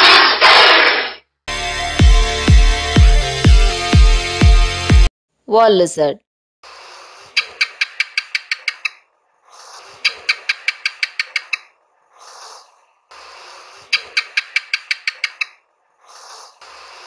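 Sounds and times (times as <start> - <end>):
gecko chirping clicks: 7.4 - 9.0, 10.0 - 11.7, 13.9 - 15.6.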